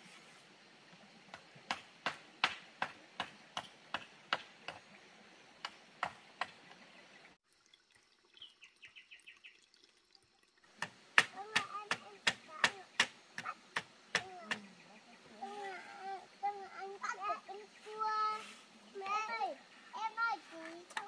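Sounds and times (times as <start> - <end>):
sharp knocks: 10.8 - 14.6.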